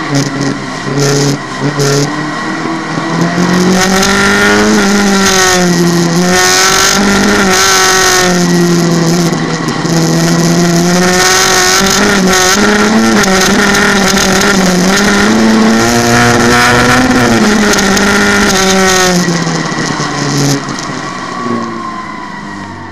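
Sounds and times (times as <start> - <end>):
car engine at high revs: 0.0 - 22.9.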